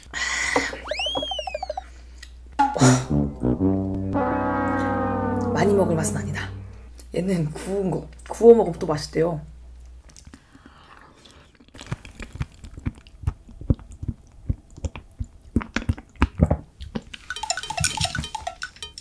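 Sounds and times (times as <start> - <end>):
repeated electronic tones: 0.9 - 1.9
close chewing with wet clicks: 11.6 - 18.2.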